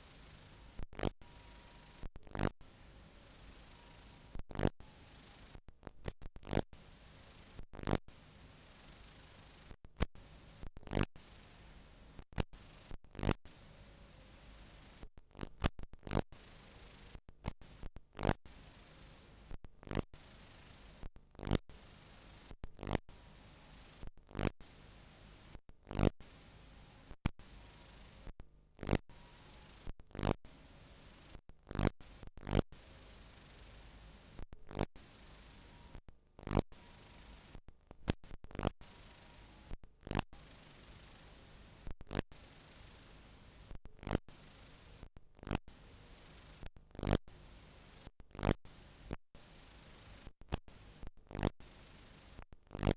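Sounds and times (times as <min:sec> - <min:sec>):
videotape hiss: 0:02.7 - 0:05.6, 0:06.8 - 0:10.6, 0:11.2 - 0:13.0, 0:21.8 - 0:22.5, 0:32.8 - 0:34.4, 0:35.0 - 0:36.0, 0:36.8 - 0:37.6, 0:40.4 - 0:41.8, 0:42.4 - 0:43.7, 0:48.7 - 0:51.0, 0:51.6 - 0:52.4
tape hiss: 0:11.2 - 0:12.9, 0:32.8 - 0:34.4, 0:35.0 - 0:36.0.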